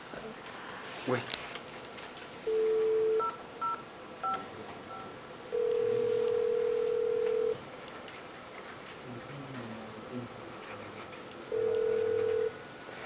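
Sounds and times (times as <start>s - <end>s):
telephone ringback tone: 2.5s - 3.8s, 4.9s - 7.6s, 11.5s - 12.6s.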